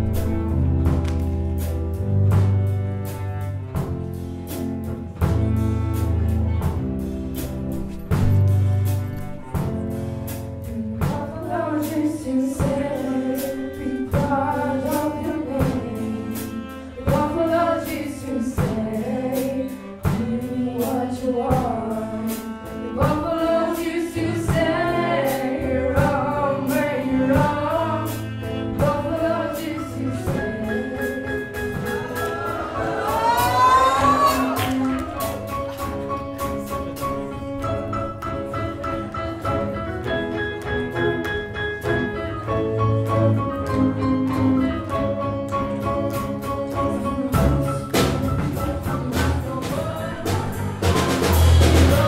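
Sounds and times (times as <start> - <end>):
cello: 0.0 - 52.0
drum kit beat: 0.0 - 52.0
guitars: 0.0 - 52.0
person singing: 42.8 - 52.0.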